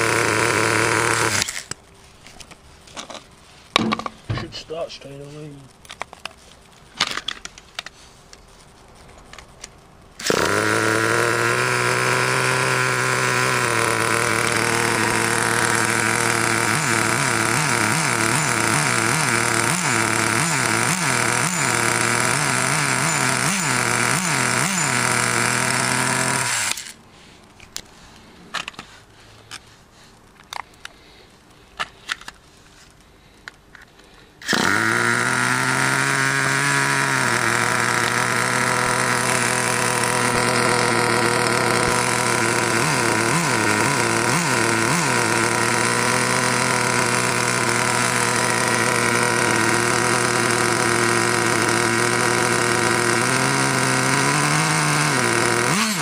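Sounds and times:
nitro model engine revving: 0:00.0 - 0:01.8, 0:10.2 - 0:27.0, 0:34.4 - 0:56.0.

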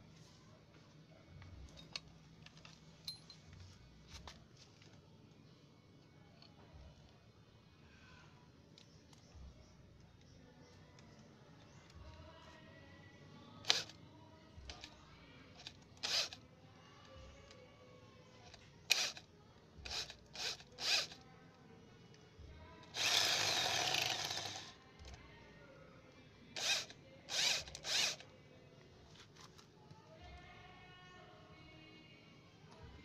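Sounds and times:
electric drill boring into steel: 0:13.7 - 0:13.9, 0:15.6 - 0:16.4, 0:18.9 - 0:19.2, 0:19.9 - 0:21.2, 0:22.9 - 0:24.7, 0:26.6 - 0:28.2.

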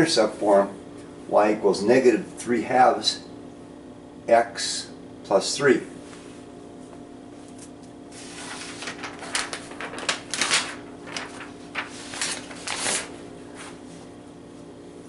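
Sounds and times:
steady low hum: 0:00.0 - 0:15.0
paper rustling: 0:07.4 - 0:13.9.

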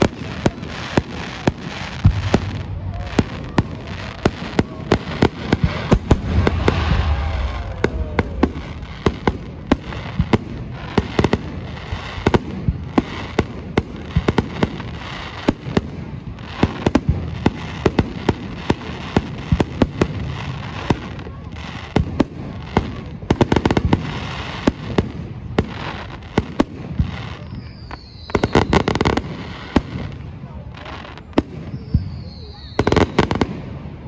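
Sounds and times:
continuous fireworks rumble: 0:00.0 - 0:34.0
fireworks bangs and cracks: 0:00.0 - 0:34.0.

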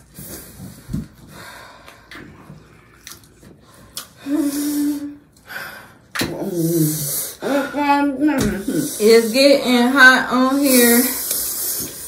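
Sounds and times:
person breathing hard: 0:00.0 - 0:02.3
person sniffing: 0:11.0 - 0:12.0.

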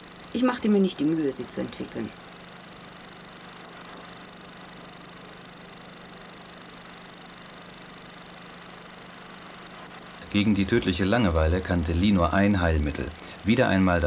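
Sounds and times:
faint low hum: 0:00.0 - 0:14.0
steady hiss: 0:00.0 - 0:14.0.

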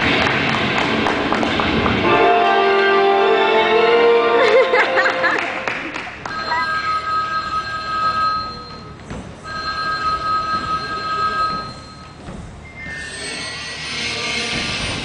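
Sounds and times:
electronic ringing tones: 0:06.3 - 0:13.1.

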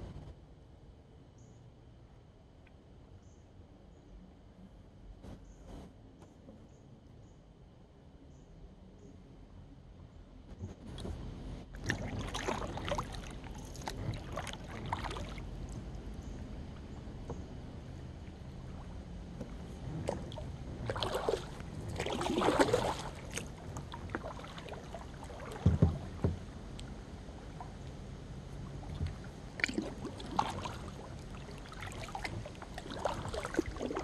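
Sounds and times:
paddle splashing in water: 0:11.7 - 0:16.0, 0:18.6 - 0:26.5, 0:28.6 - 0:34.0.

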